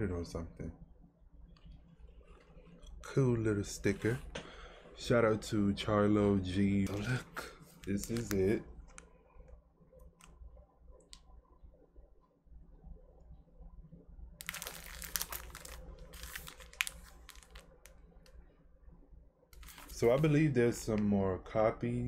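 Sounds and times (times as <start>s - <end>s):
shrink wrap crinkling: 6.8s - 9.1s, 14.4s - 18.4s, 19.6s - 20.4s.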